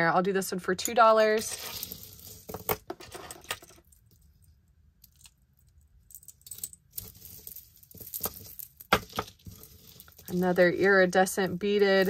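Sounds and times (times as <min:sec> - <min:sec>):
beaded necklace clicking and jingling: 0:03.8 - 0:12.0.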